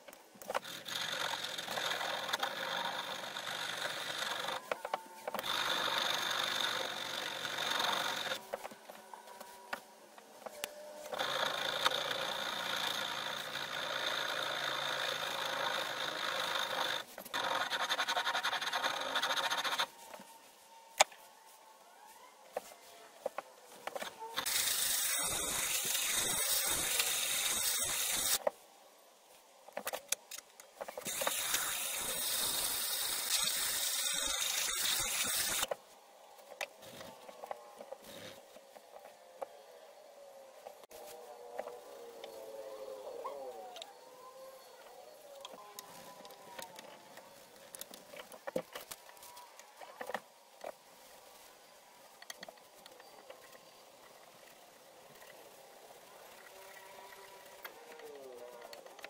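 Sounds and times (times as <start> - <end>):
file rasping on steel: 31.1 - 35.7.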